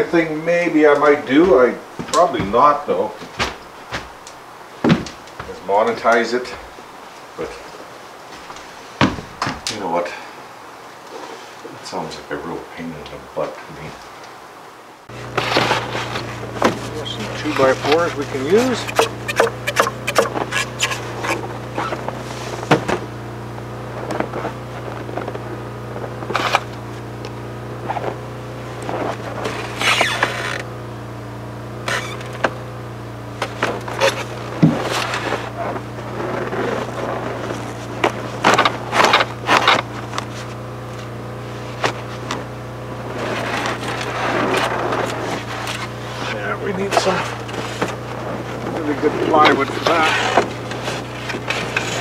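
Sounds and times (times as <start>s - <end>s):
steady low hum: 0.0s - 52.0s
wooden boards knocking together: 18.7s - 21.4s.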